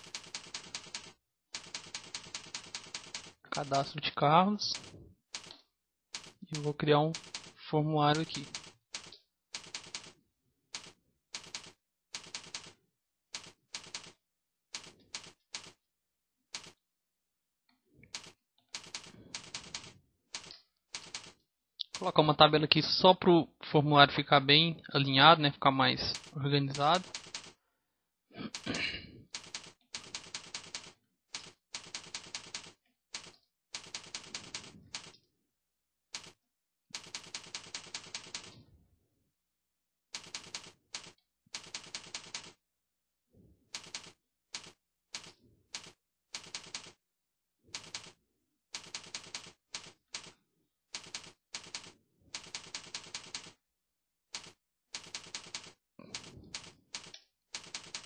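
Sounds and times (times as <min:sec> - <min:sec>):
computer keyboard typing: 0:00.0 - 0:03.9, 0:04.7 - 0:05.6, 0:06.2 - 0:10.2, 0:10.8 - 0:12.8, 0:13.4 - 0:14.2, 0:14.8 - 0:15.8, 0:16.6 - 0:16.8, 0:18.1 - 0:22.2, 0:26.0 - 0:27.6, 0:29.4 - 0:35.2, 0:36.2 - 0:36.4, 0:37.0 - 0:38.6, 0:40.2 - 0:42.6, 0:43.8 - 0:47.0, 0:47.8 - 0:48.2, 0:48.8 - 0:50.4, 0:51.0 - 0:53.6, 0:54.4 - 0:58.0.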